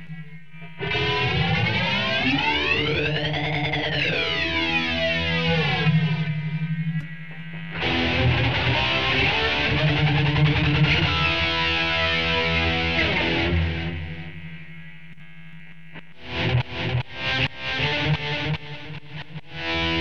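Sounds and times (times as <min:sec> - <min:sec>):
electric guitar chord with flanger: 0:00.8 - 0:14.6.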